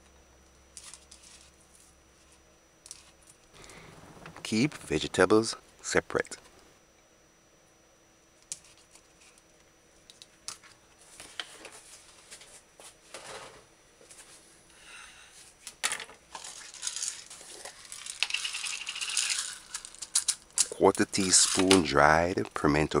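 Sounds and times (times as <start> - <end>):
spice jar rattling: 16.4 - 21.9.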